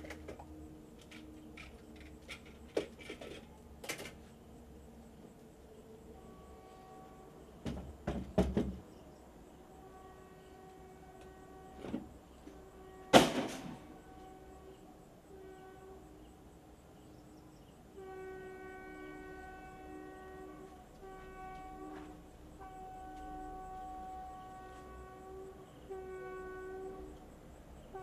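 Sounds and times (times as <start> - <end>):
steady horn-like tone: 6.1 - 7.5, 9.6 - 16.4, 17.9 - 28.0.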